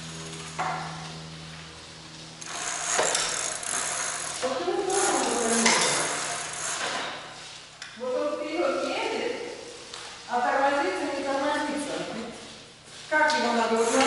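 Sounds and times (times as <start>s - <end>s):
bicycle tyres rolling on concrete: 0.0s - 7.8s
freewheel ratcheting: 2.4s - 7.2s, 13.7s - 14.0s.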